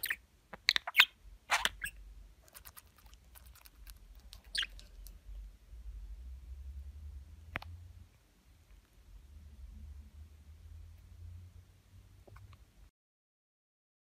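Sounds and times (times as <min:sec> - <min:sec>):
budgerigar chirping: 0:00.0 - 0:02.0, 0:04.3 - 0:04.8
budgerigar squeaky call: 0:00.8 - 0:02.0, 0:04.5 - 0:04.8.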